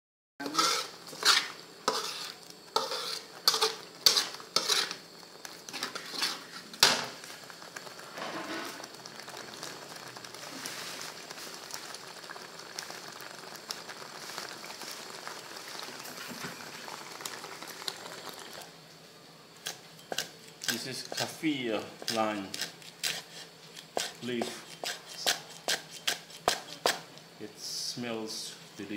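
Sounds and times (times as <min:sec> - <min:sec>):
metal spatula scraping wok: 0:00.4 - 0:05.1, 0:05.7 - 0:07.2, 0:08.0 - 0:09.3, 0:22.0 - 0:26.9
paste sizzling in wok: 0:00.4 - 0:28.9.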